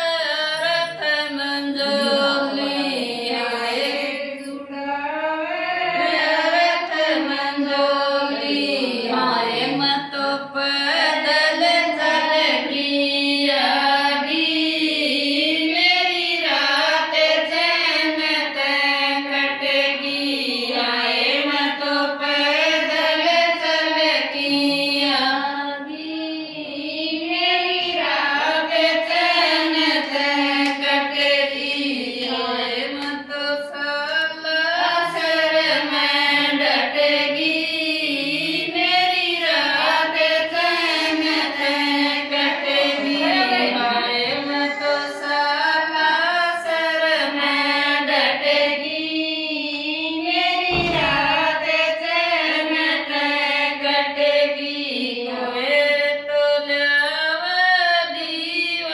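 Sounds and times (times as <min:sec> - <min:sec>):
women singing devotional song: 0:00.0 - 0:58.9.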